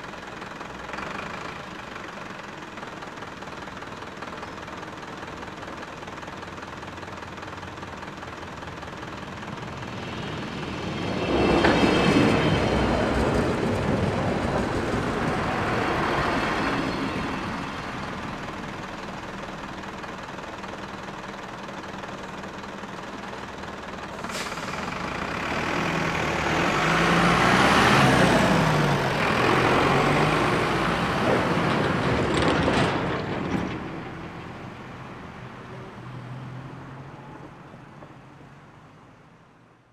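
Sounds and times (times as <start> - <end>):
truck diesel engine pulling away: 0.0 - 39.2
train running past: 8.2 - 38.4
cars passing: 24.7 - 39.3.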